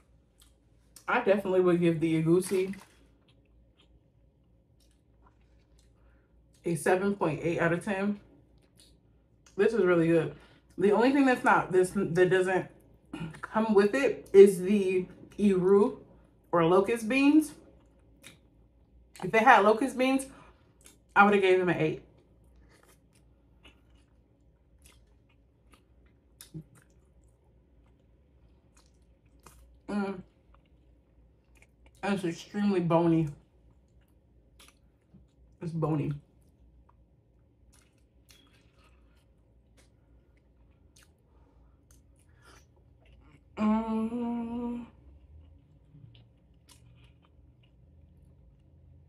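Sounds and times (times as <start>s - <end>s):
person chewing food: 0.0s - 1.1s, 2.7s - 6.6s, 8.4s - 9.6s, 17.6s - 19.2s, 20.5s - 21.2s, 22.1s - 32.0s, 33.4s - 35.6s, 36.3s - 43.6s, 45.0s - 49.0s.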